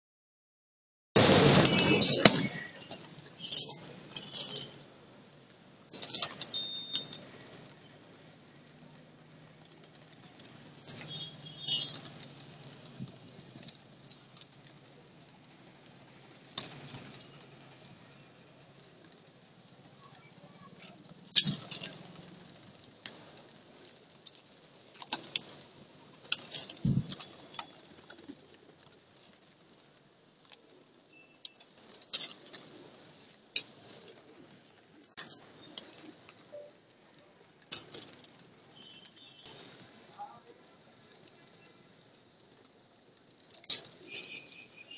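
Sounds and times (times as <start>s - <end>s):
loud wing clatter: 1.2s - 14.8s, 20.5s - 30.0s.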